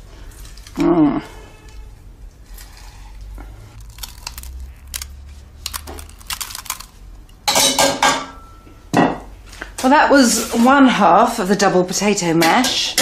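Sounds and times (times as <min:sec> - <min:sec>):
potato ricer clicking and crackling: 0:03.8 - 0:07.4.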